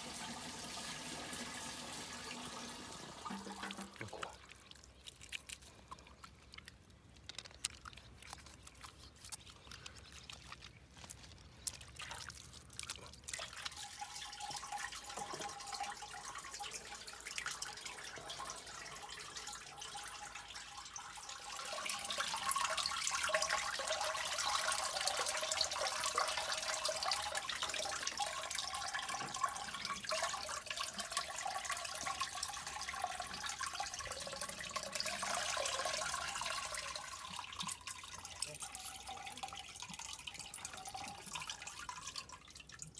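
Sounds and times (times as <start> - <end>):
whey dripping and splashing: 0.0 - 42.9
whey trickling through cloth: 6.5 - 13.8.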